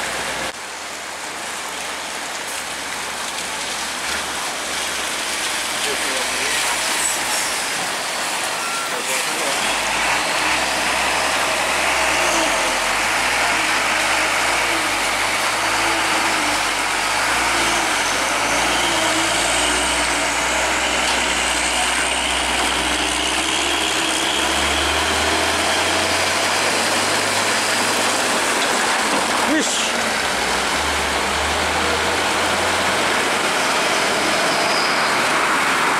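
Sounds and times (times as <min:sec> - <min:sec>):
truck diesel engine: 0:00.0 - 0:35.9.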